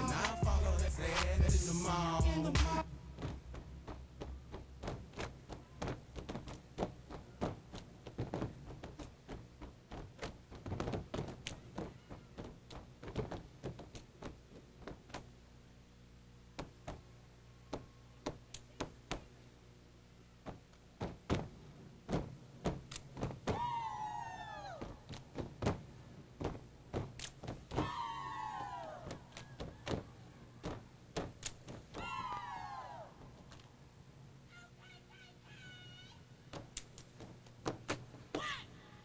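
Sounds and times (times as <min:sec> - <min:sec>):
hands clapping: 0:00.2 - 0:00.4, 0:01.1 - 0:01.4.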